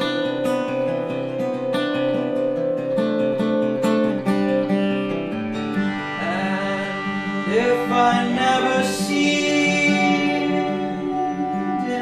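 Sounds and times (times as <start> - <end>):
acoustic guitar strumming: 0.0 - 12.0
long held note: 5.7 - 12.0.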